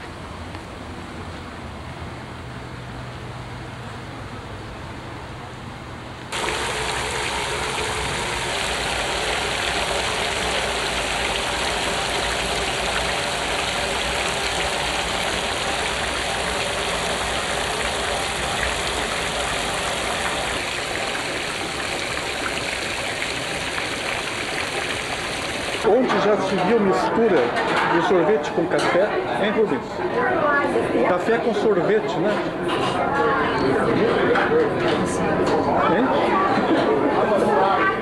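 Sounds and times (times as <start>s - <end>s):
fountain water splashing: 6.3s - 26.0s.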